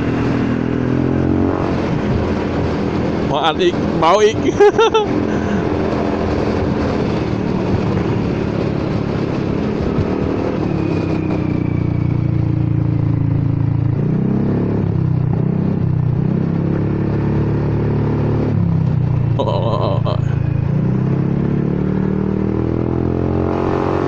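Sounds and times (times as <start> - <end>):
wind rushing: 0.0 - 4.0, 5.0 - 12.0.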